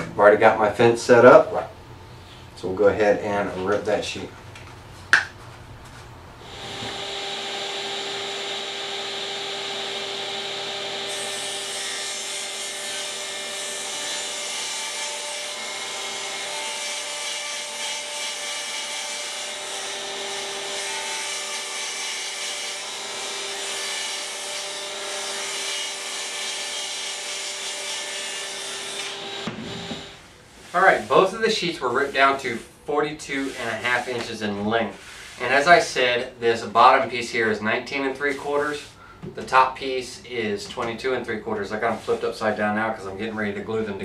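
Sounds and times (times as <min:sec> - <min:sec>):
table saw motor hum: 0:06.4 - 0:18.4, 0:22.6 - 0:30.2
saw blade cutting board: 0:06.4 - 0:19.2, 0:19.8 - 0:30.2.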